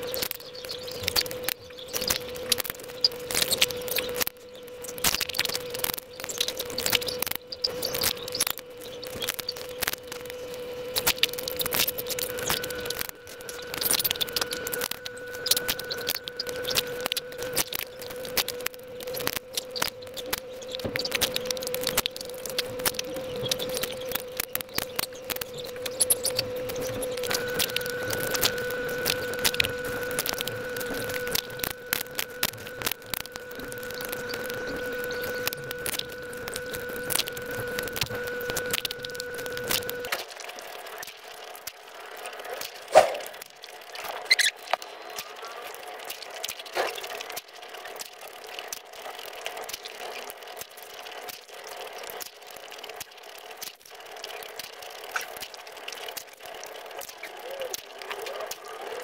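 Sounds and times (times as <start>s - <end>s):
faint steady hum: 0.0s - 59.0s
wet chewing: 42.6s - 47.4s.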